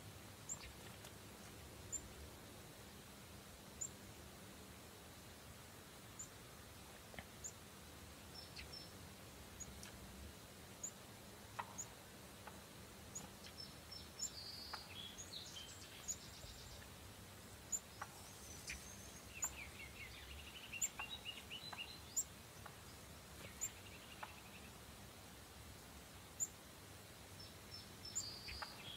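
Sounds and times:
songbirds calling: 0.0s - 4.2s, 5.2s - 25.2s, 26.0s - 28.9s
background hiss: 0.0s - 28.9s
soft clicks: 9.6s - 10.0s.

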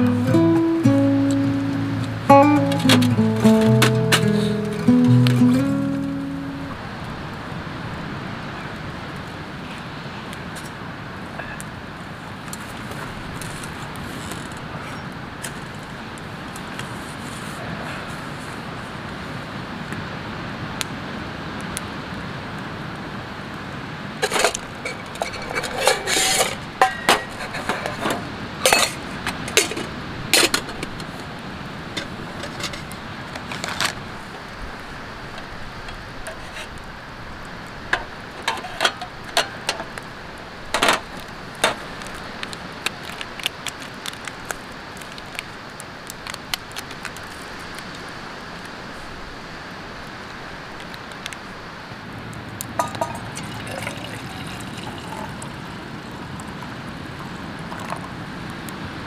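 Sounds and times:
steady background noise: 0.0s - 59.0s
metal cookware clinking: 24.2s - 27.9s, 28.6s - 29.8s, 38.4s - 39.9s, 52.8s - 55.2s.

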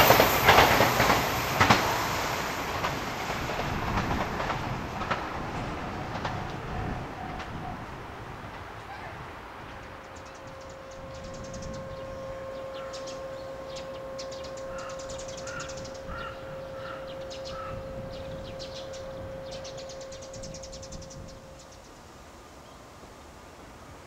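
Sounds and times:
crow cawing: 14.7s - 17.8s.

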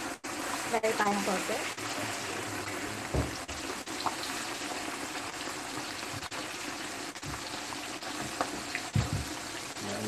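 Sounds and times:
chicken deep-frying in hot oil: 0.0s - 10.0s
dull knock: 3.1s - 3.4s, 8.2s - 9.4s.

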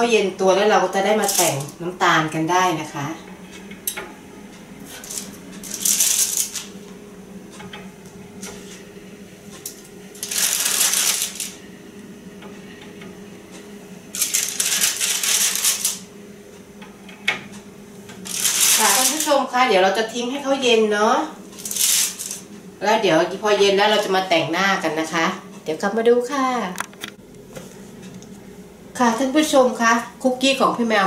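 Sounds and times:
low steady hum: 0.0s - 31.0s
baking paper crinkling: 4.9s - 6.8s, 10.2s - 11.6s, 14.2s - 16.1s, 18.2s - 19.4s, 21.6s - 22.4s.

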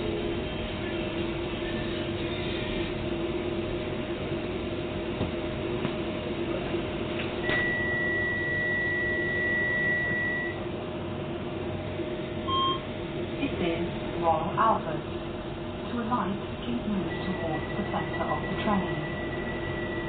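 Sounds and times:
high steady tone: 7.4s - 10.6s, 16.9s - 20.0s
train running noise: 13.4s - 20.0s.

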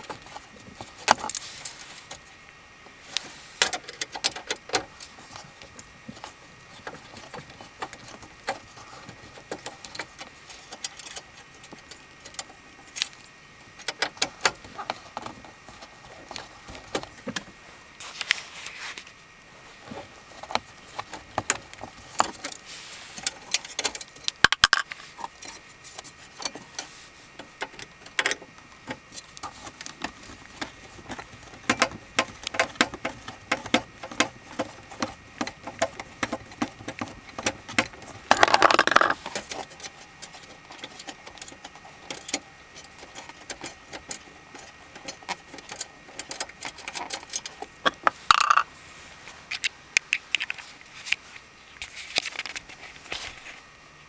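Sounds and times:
screwdriver clicks and rattles: 27.6s - 48.6s.

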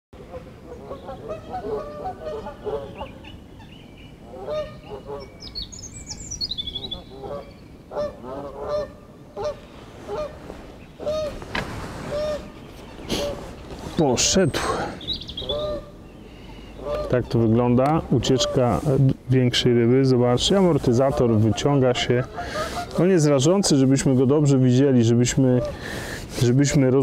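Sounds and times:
geese honking: 0.3s - 5.5s, 6.6s - 13.6s, 15.4s - 19.0s, 20.4s - 23.8s, 25.3s - 26.2s.

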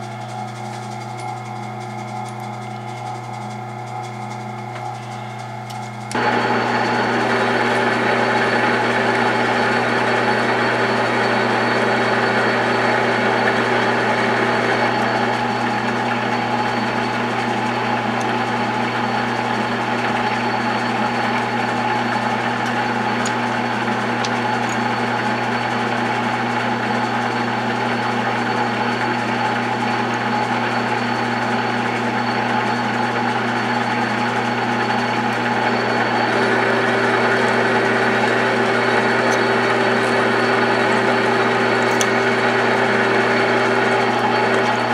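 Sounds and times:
lathe motor humming with whine: 0.0s - 44.9s.

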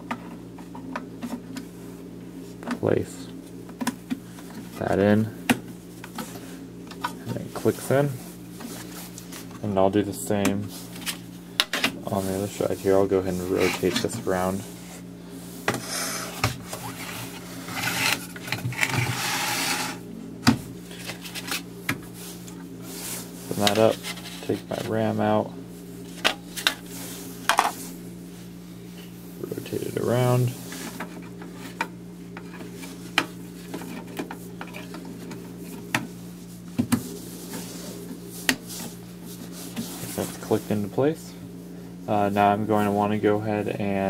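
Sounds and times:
steady low hum: 0.0s - 44.0s
plastic and metal scraping: 15.7s - 20.0s.

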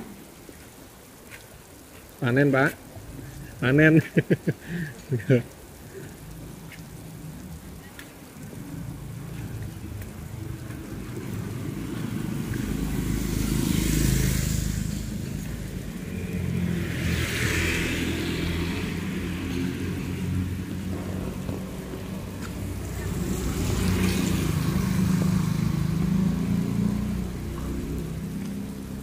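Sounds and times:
tyres hissing through water: 0.0s - 29.0s
motorcycles passing: 4.1s - 29.0s.

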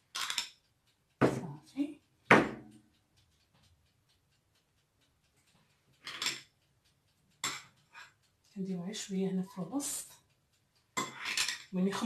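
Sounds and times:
metal spoon scraping glass bowl: 11.0s - 11.7s.

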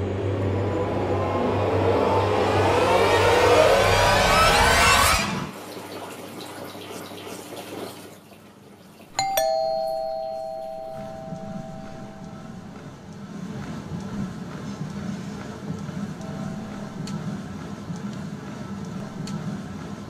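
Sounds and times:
loud rising whoosh: 0.0s - 5.5s
two-note doorbell chime: 9.2s - 13.0s.

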